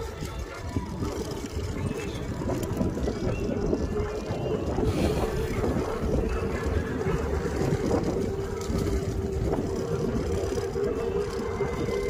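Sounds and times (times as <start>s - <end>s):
tyres rumbling on dirt: 0.0s - 12.0s
wind on microphone: 0.0s - 12.0s.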